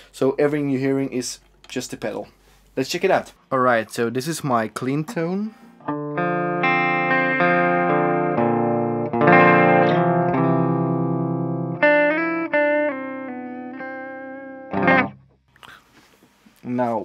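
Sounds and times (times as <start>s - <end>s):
clean electric guitar chords: 5.1s - 15.2s.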